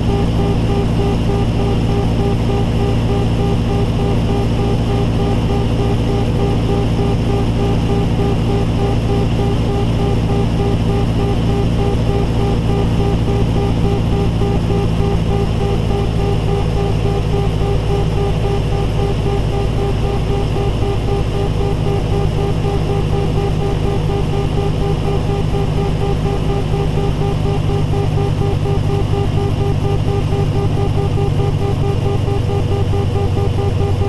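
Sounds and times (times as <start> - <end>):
light airplane engine drone: 0.0 - 34.0
warning tone beeping: 0.0 - 34.0.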